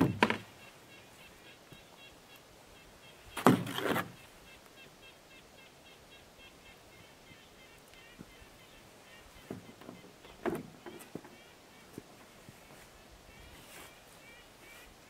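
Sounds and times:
gear clunking against canoe: 0:03.4 - 0:04.2, 0:09.4 - 0:11.4.

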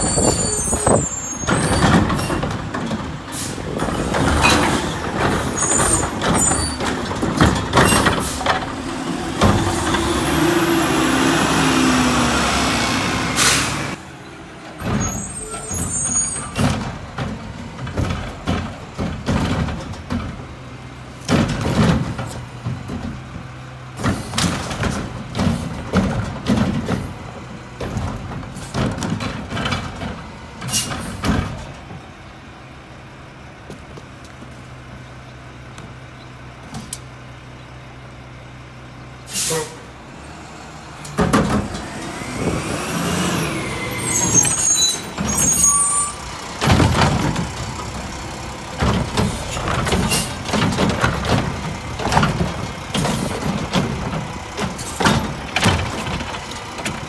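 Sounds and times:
mechanical arm clanking and whining: 0:00.0 - 0:14.0, 0:40.5 - 0:57.0
diesel engine running: 0:00.0 - 0:57.0
air brakes hissing: 0:03.3 - 0:04.1, 0:07.9 - 0:08.6, 0:13.3 - 0:14.0, 0:30.7 - 0:31.3, 0:39.2 - 0:40.0, 0:41.6 - 0:46.3.

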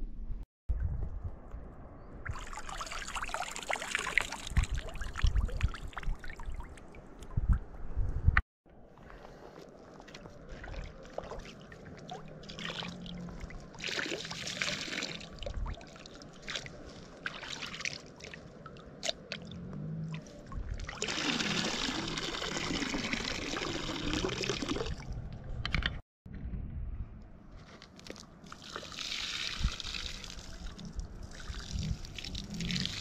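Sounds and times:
water trickling in a bowl: 0:02.3 - 0:06.8.

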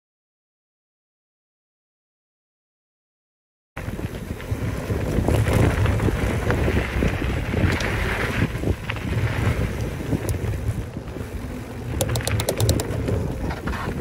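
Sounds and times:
bike rattles and knocks: 0:03.8 - 0:14.0
tyre noise on dirt: 0:03.8 - 0:14.0
wind buffeting microphone: 0:03.8 - 0:14.0.

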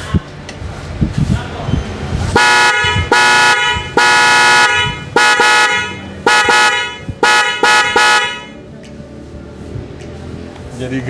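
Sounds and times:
car horn honking: 0:02.3 - 0:08.6.

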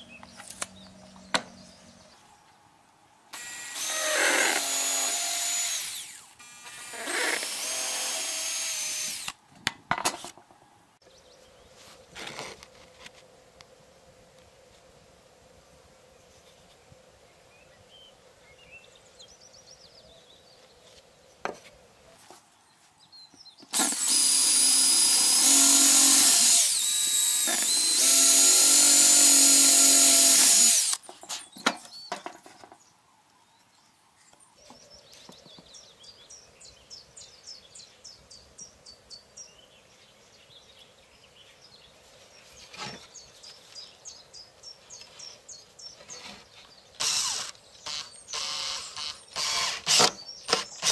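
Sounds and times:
cordless drill boring wood: 0:03.4 - 0:09.4, 0:23.7 - 0:31.0, 0:47.0 - 0:50.9.

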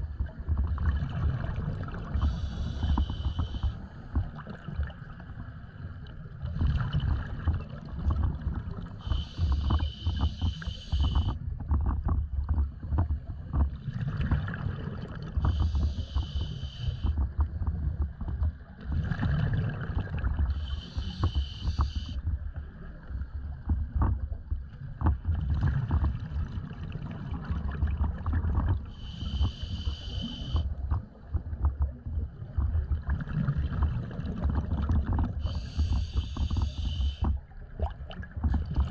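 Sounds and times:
exhaled bubbles rumbling: 0:00.0 - 0:38.9
regulator hissing inhalations: 0:02.2 - 0:03.7, 0:09.0 - 0:11.3, 0:15.6 - 0:17.1, 0:20.6 - 0:22.2, 0:29.0 - 0:30.6, 0:35.4 - 0:37.2.

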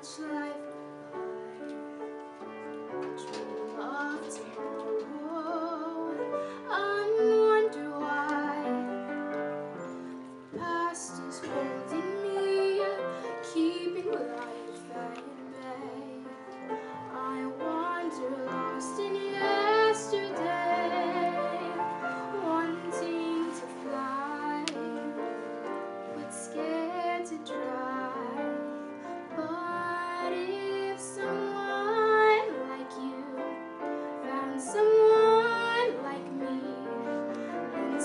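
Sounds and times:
woman singing a slow ballad: 0:00.0 - 0:00.7, 0:03.3 - 0:09.0, 0:10.6 - 0:25.2, 0:26.2 - 0:28.6, 0:29.4 - 0:33.4, 0:34.3 - 0:37.2
grand piano: 0:00.0 - 0:38.0.

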